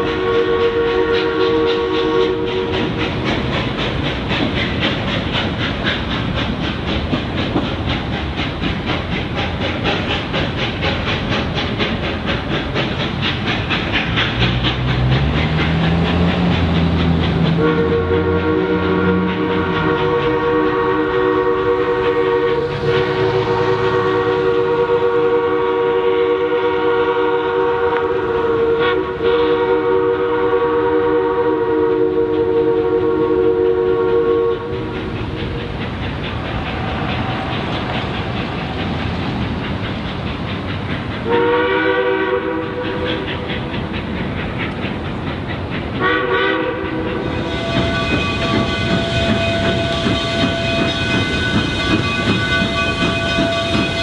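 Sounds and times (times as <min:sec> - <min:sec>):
steam locomotive whistle blasts: 0:00.0 - 0:03.0, 0:17.4 - 0:35.0, 0:41.2 - 0:43.3, 0:46.0 - 0:54.0
rumble and clatter of moving train: 0:00.0 - 0:54.0.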